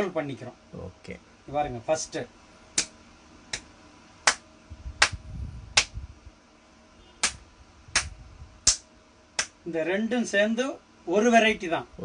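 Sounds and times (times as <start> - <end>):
hands slapping together: 3.5 - 4.4, 5.0 - 5.2, 5.8 - 6.0, 7.2 - 7.4, 8.0 - 9.6.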